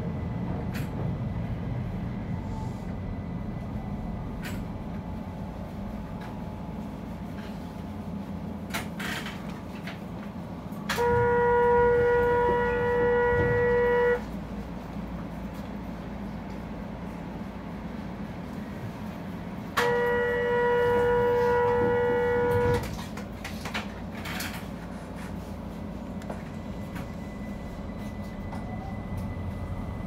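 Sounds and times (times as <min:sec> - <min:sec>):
electric train rumbling: 0:00.0 - 0:30.0
train horn: 0:10.9 - 0:14.4, 0:19.7 - 0:23.1.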